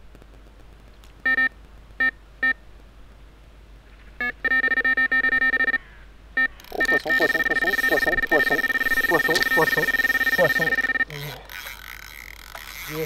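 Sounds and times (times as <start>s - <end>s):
bite alarm beeping: 4.2s - 5.8s, 6.4s - 11.4s.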